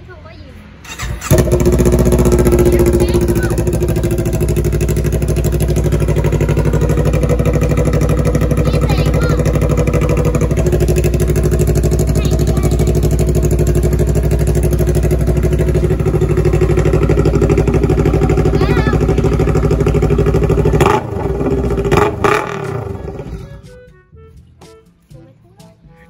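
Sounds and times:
motorcycle engine running: 0:00.9 - 0:23.9.

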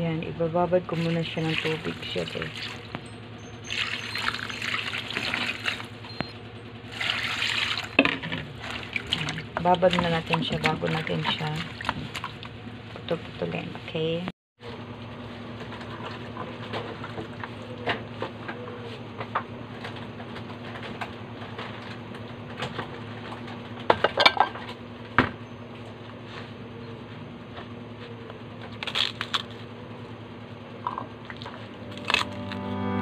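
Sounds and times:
steady low hum: 0:00.0 - 0:23.8, 0:25.8 - 0:33.0.

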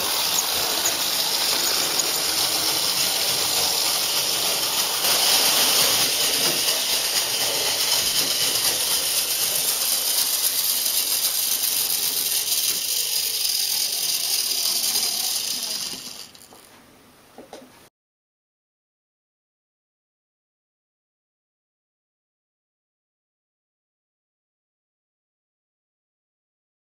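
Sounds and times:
model train motor whirring: 0:00.0 - 0:16.7
wheels on track: 0:00.0 - 0:16.8.

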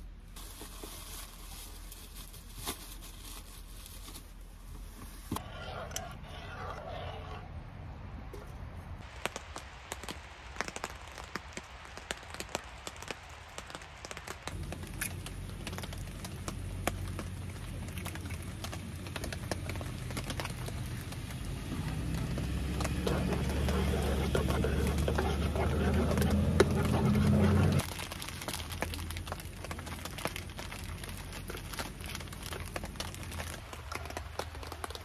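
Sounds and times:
rain falling in a forest: 0:09.0 - 0:25.1, 0:27.8 - 0:35.0
raindrops ticking on an awning: 0:09.0 - 0:25.5, 0:27.6 - 0:35.0.

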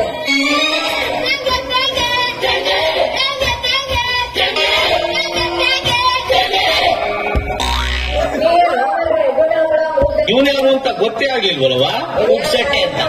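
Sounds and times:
high singing voice: 0:00.0 - 0:10.5
instrumental accompaniment: 0:04.6 - 0:08.6.

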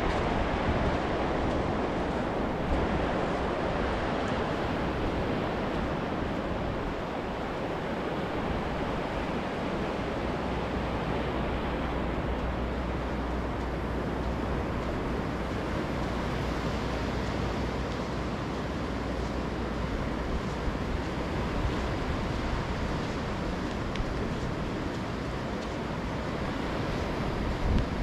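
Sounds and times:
waves breaking on sand: 0:00.0 - 0:28.0
wind noise on microphone: 0:00.0 - 0:28.0.

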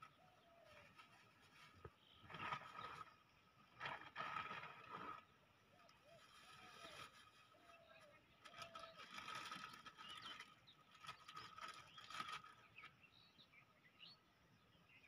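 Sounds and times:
bird chirps: 0:05.7 - 0:15.0.

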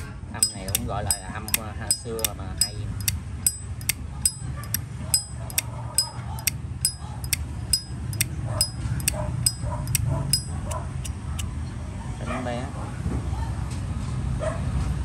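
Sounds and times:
lighter lid clicking open and shut: 0:00.0 - 0:09.1, 0:09.9 - 0:10.6.

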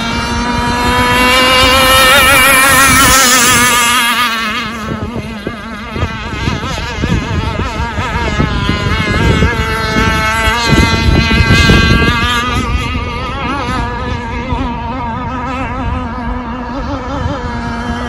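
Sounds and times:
rc boat motor high whine: 0:00.0 - 0:18.0.

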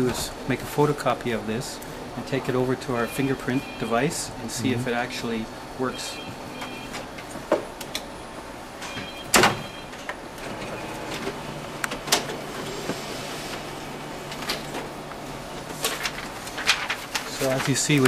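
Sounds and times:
photocopier humming: 0:00.0 - 0:18.0
keypad beeps: 0:03.0 - 0:04.0, 0:05.9 - 0:07.2, 0:08.8 - 0:11.0
photocopier clunk: 0:08.8 - 0:18.0
photocopier clicks: 0:10.0 - 0:18.0.

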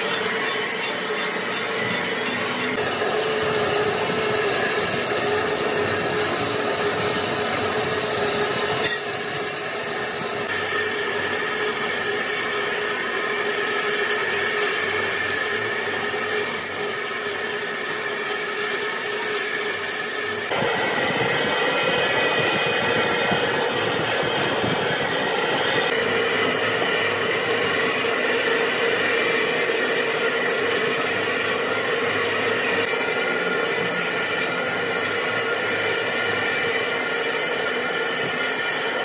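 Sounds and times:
held whine: 0:00.0 - 0:39.0
lathe cutting tool scraping metal: 0:00.0 - 0:39.0
lathe running: 0:00.0 - 0:39.0.

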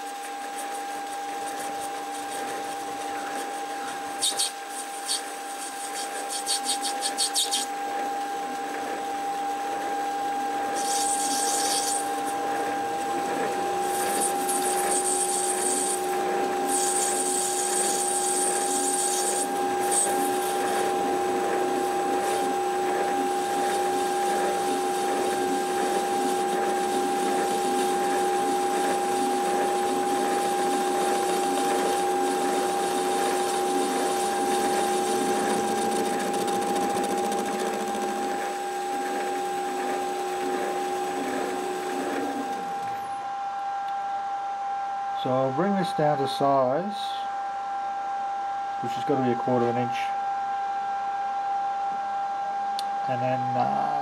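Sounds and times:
metal lathe running: 0:00.1 - 0:43.3
hissing cutting bursts: 0:10.8 - 0:12.4, 0:13.8 - 0:20.6.

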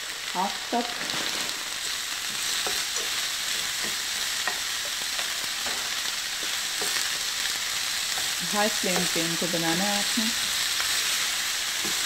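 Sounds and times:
vegetables sizzling in a frying pan: 0:00.0 - 0:12.0.

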